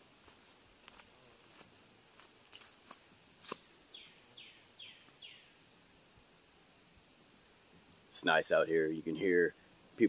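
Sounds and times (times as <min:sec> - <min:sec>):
high-pitched insect trill: 0:00.0 - 0:10.0
insect trilling in phrases: 0:08.2 - 0:10.0.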